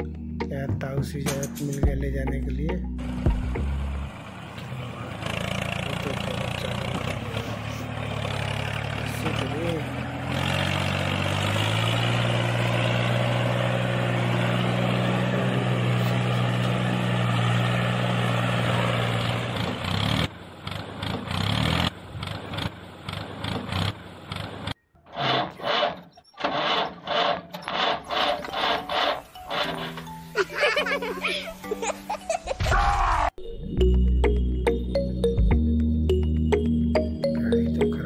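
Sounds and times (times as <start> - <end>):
tractor engine running: 1.3 - 31.7.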